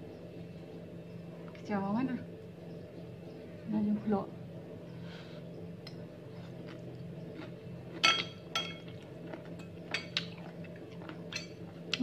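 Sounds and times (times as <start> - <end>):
steady low hum: 0.0 - 12.0
cutlery clinking on ceramic bowl: 8.0 - 11.6.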